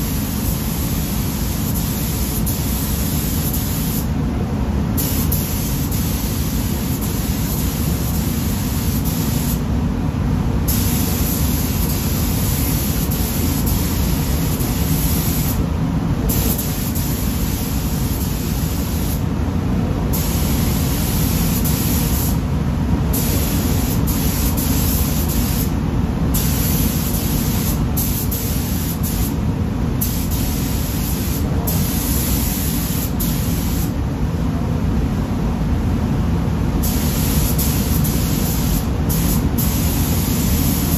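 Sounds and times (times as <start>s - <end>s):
paint spray gun hissing: 0.0s - 4.1s, 5.0s - 9.6s, 10.7s - 15.6s, 16.3s - 19.2s, 23.2s - 25.8s, 26.4s - 29.4s, 30.0s - 33.9s, 36.8s - 40.9s
low rumble of air flow: 0.0s - 40.9s.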